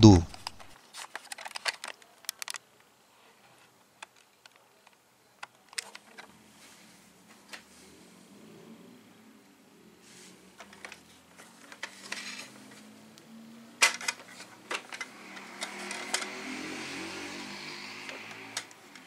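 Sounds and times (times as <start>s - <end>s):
plastic toy truck clicking: 0.4s - 2.6s, 13.8s - 16.4s.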